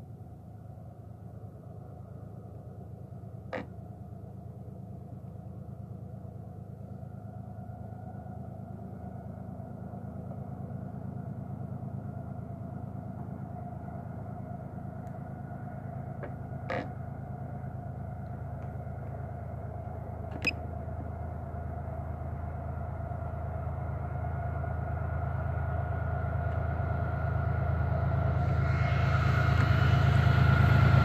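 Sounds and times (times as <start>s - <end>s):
distant freight train rumble: 0.7s - 31.0s.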